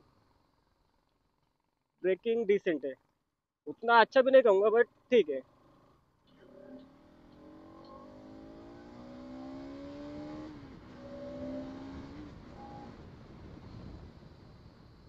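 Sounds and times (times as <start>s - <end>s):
motorcycle engine accelerating: 4.8s - 15.0s.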